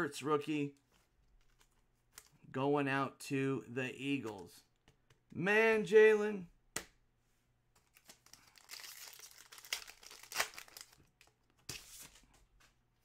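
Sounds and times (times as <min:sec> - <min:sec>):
plastic wrapper crinkling: 0:07.8 - 0:12.0.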